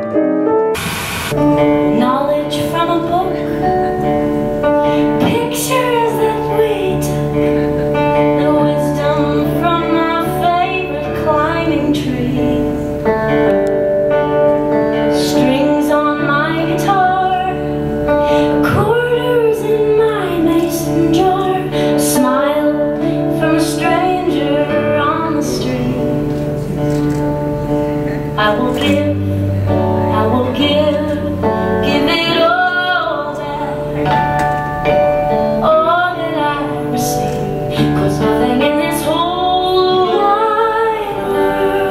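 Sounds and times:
acoustic guitar: 0.0s - 41.9s
woman singing: 1.4s - 13.4s, 14.9s - 26.5s, 28.3s - 34.5s, 35.3s - 41.9s.

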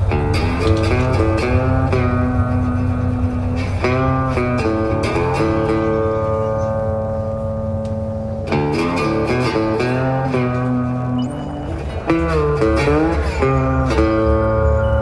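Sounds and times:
plucked guitar: 0.0s - 15.0s.

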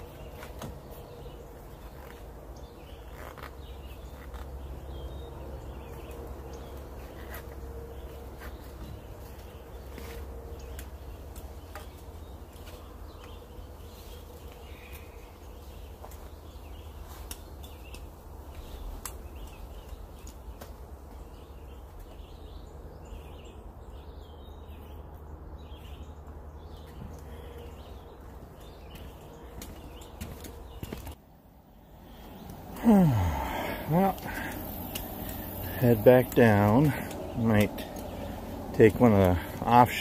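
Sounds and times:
birds calling: 0.0s - 40.0s
steady low rumble: 31.6s - 40.0s.

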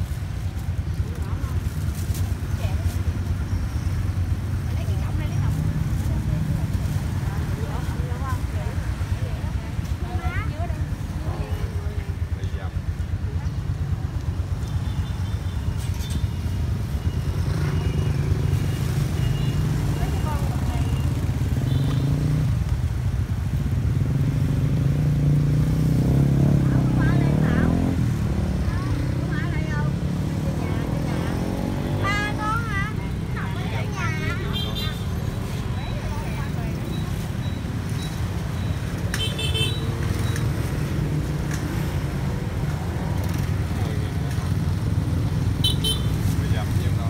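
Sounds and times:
motorbike engines idling: 0.0s - 25.4s
street traffic: 0.0s - 47.0s.

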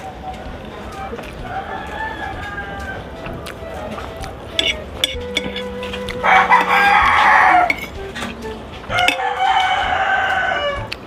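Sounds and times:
rooster crowing: 1.4s - 3.2s, 6.2s - 7.9s, 8.9s - 11.0s
cutlery clinking on plate: 4.6s - 5.7s, 7.6s - 8.4s, 9.0s - 9.8s.

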